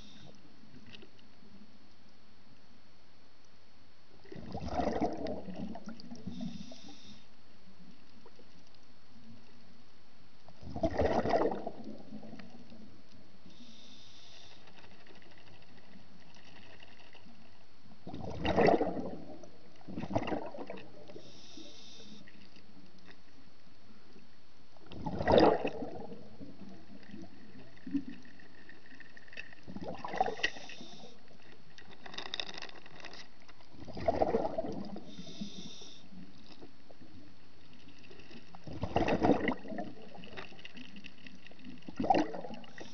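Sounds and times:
regulator hissing on inhale: 0:00.0 - 0:00.5, 0:06.2 - 0:07.5, 0:13.4 - 0:16.0, 0:21.1 - 0:22.7, 0:30.2 - 0:31.6, 0:34.9 - 0:36.5, 0:42.6 - 0:42.9
underwater exhaled bubbles rushing: 0:04.2 - 0:06.4, 0:10.6 - 0:12.6, 0:18.0 - 0:21.2, 0:24.9 - 0:28.2, 0:29.7 - 0:31.0, 0:33.7 - 0:35.7, 0:38.6 - 0:42.9.

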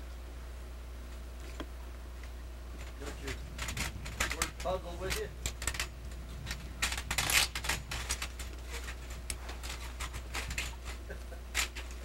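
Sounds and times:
brief rustle: 0:02.8 - 0:12.0
horse tack rattling: 0:02.8 - 0:12.0.

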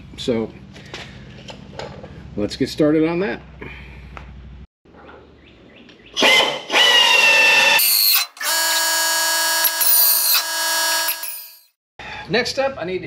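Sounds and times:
power drill boring sheet metal: 0:06.2 - 0:11.7.

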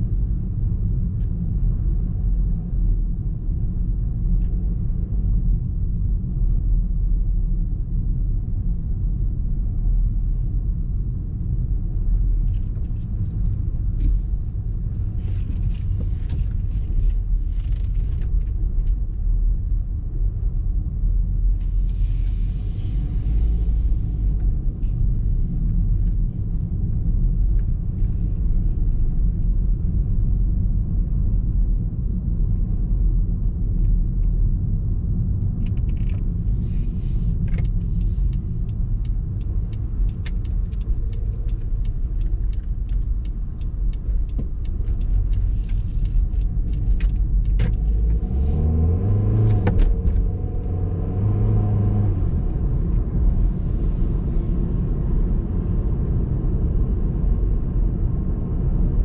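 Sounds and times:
car engine and road rumble: 0:00.0 - 0:59.0
regular clicking: 0:37.4 - 0:48.0.

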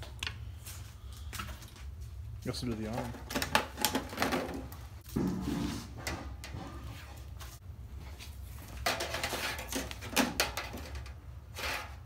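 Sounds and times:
metal duct crinkling and rattling: 0:01.4 - 0:05.2, 0:08.4 - 0:12.0.

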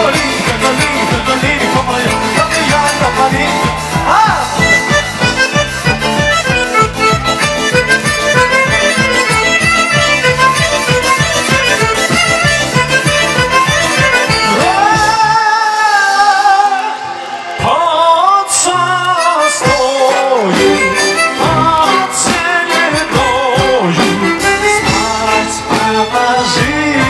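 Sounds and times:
person singing: 0:00.0 - 0:06.6, 0:07.6 - 0:27.0
violin holding wavering notes: 0:00.0 - 0:15.1
steady drum beat: 0:00.0 - 0:15.5, 0:19.6 - 0:27.0.

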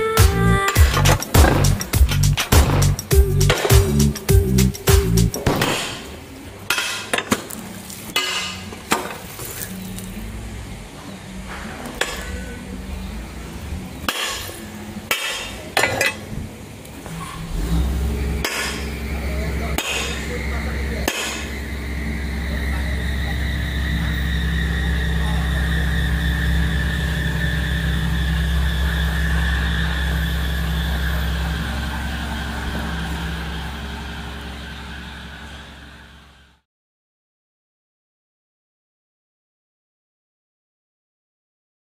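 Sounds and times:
excavator diesel engine: 0:00.0 - 0:05.5, 0:14.6 - 0:36.6
metal track clanks: 0:00.7 - 0:03.9, 0:17.1 - 0:35.8.

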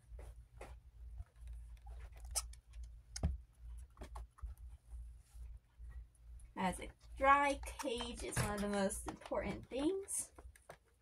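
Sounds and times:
steady low hum: 0:00.0 - 0:11.0
fleece liner scratching and clicks: 0:01.2 - 0:04.6.

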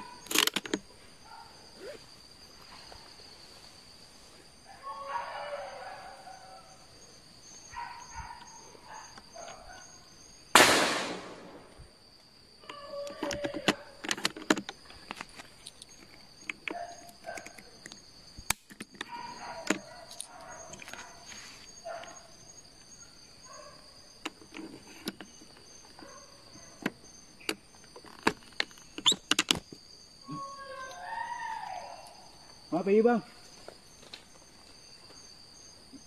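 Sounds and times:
insects droning: 0:00.0 - 0:36.0
pulsing insect chirp: 0:00.0 - 0:36.0
faint animal calls: 0:04.6 - 0:10.2, 0:30.2 - 0:33.4.

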